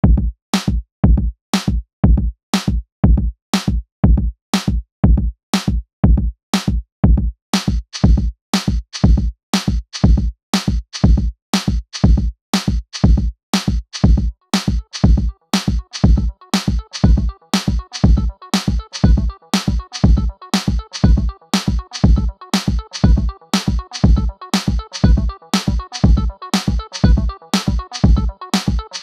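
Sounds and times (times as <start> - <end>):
electronic drum beat: 0.0 - 29.0
hissy percussion: 14.0 - 29.0.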